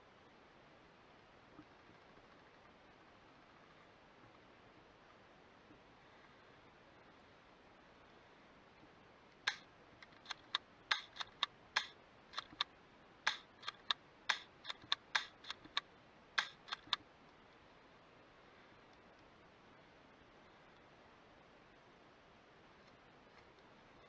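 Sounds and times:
airsoft gunfire cracks: 0:10.3 - 0:12.6, 0:13.3 - 0:15.8.

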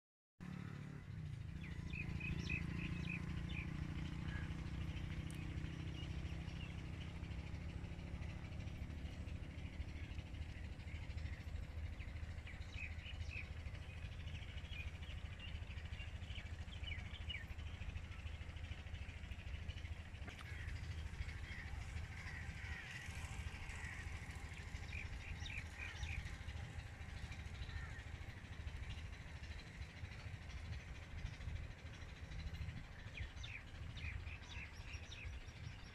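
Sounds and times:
steady low hum: 0:00.5 - 0:35.9
birds calling: 0:00.8 - 0:35.9
steady low rumble: 0:00.9 - 0:35.9.

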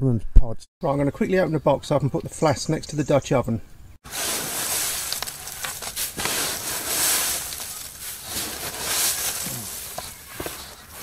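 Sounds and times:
hands rustling through dry hay: 0:04.0 - 0:11.0.

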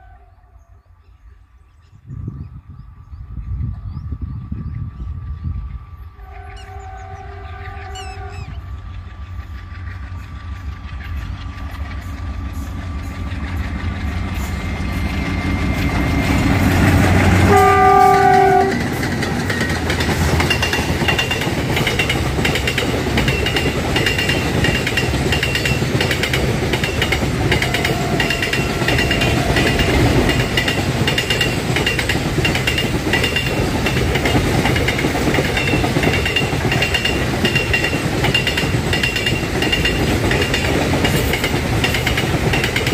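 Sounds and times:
train horn: 0:00.0 - 0:00.9, 0:06.2 - 0:08.7, 0:16.9 - 0:19.0, 0:27.4 - 0:30.5
diesel locomotive engines: 0:00.0 - 0:42.9
high wheel squeal: 0:06.4 - 0:08.7
wheels clattering on rails: 0:08.5 - 0:42.9.

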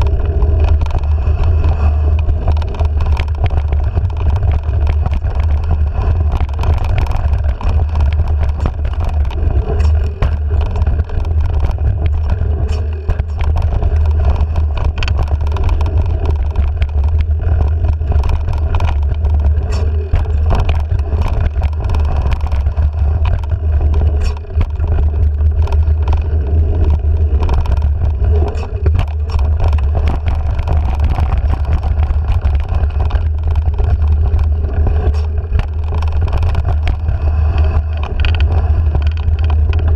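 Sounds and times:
bike rattling on dirt trail: 0:00.0 - 0:39.9
wind rumble on microphone: 0:00.0 - 0:39.9.

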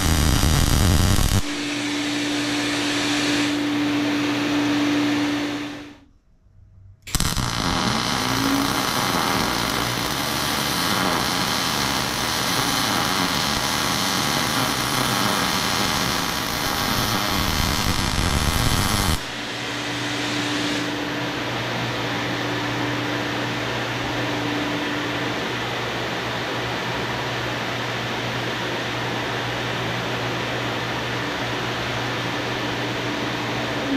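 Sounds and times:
welding arc crackling: 0:00.0 - 0:03.6, 0:07.1 - 0:21.0
fume extractor humming: 0:00.0 - 0:06.1, 0:06.9 - 0:33.9.

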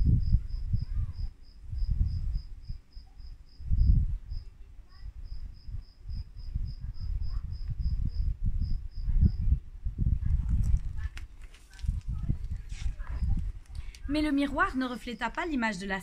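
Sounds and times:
cricket chirping: 0:00.0 - 0:09.6
low wind rumble on microphone: 0:00.0 - 0:15.6.

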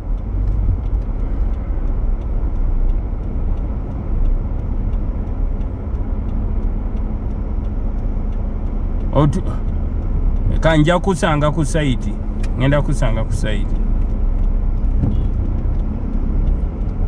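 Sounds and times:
car cabin road rumble: 0:00.0 - 0:17.0
faint regular ticking: 0:00.0 - 0:17.0.

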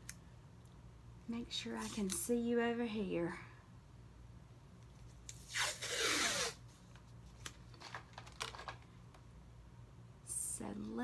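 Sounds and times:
tape peeling off roll: 0:05.3 - 0:06.6.

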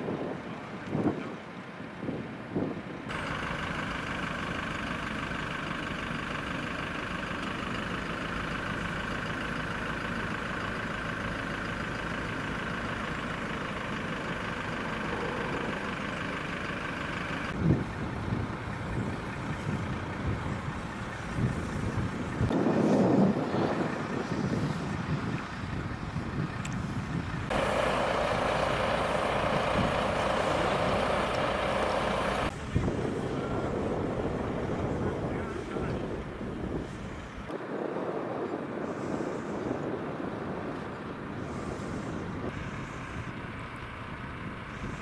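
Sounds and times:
vehicle engine idling: 0:02.9 - 0:37.6, 0:38.7 - 0:45.0
wind on microphone: 0:17.5 - 0:45.0.

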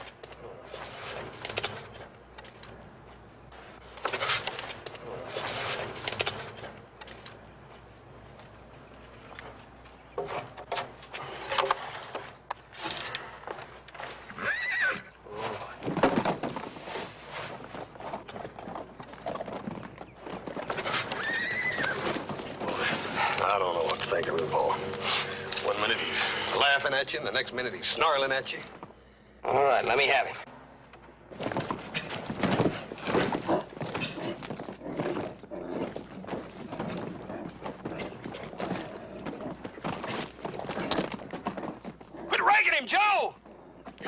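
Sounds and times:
horse hooves on hard ground: 0:05.8 - 0:26.5, 0:31.3 - 0:44.0
horse whinny: 0:14.2 - 0:15.4, 0:20.8 - 0:23.0.

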